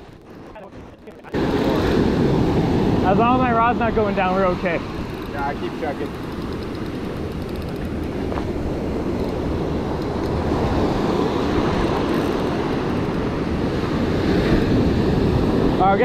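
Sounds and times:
wind buffeting microphone: 0.0 - 16.0
surf breaking on beach: 0.6 - 6.1.

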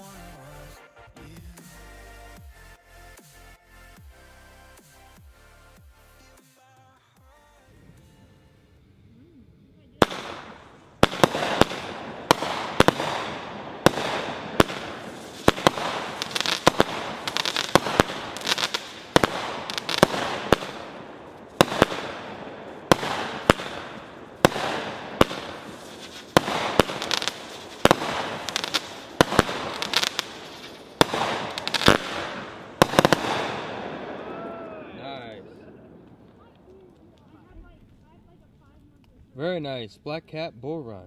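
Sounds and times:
firework crackling: 0.0 - 0.6, 9.8 - 39.4
firework bangs: 9.9 - 38.2.

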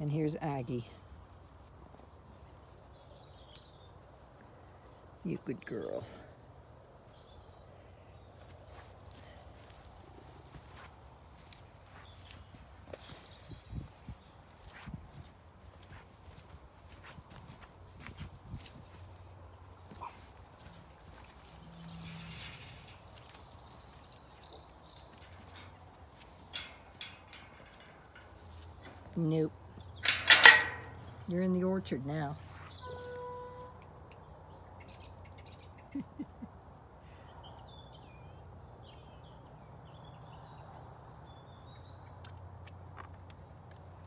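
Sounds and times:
faint footsteps on soft ground: 0.0 - 30.0, 30.8 - 34.8
small birds chirping: 0.2 - 10.0, 10.6 - 43.9.

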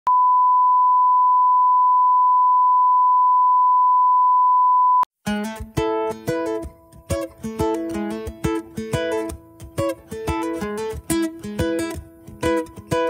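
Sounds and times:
reference tone beep: 0.1 - 5.1
plucked guitar music: 5.2 - 13.0.

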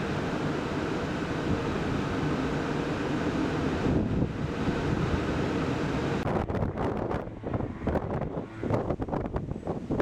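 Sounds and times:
wind buffeting microphone: 3.7 - 10.0.

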